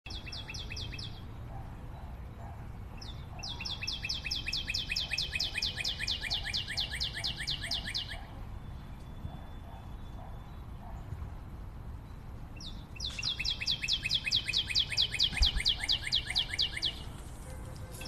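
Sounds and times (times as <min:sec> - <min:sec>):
songbird trilling: 0:00.1 - 0:01.3, 0:03.0 - 0:08.4, 0:12.6 - 0:17.2.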